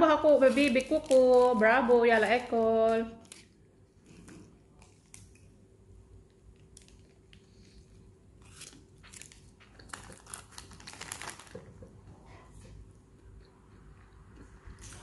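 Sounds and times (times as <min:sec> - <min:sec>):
paper wrapper crinkling: 0:00.0 - 0:03.6, 0:06.5 - 0:07.8, 0:08.4 - 0:11.9
person chewing a sandwich: 0:06.4 - 0:15.0.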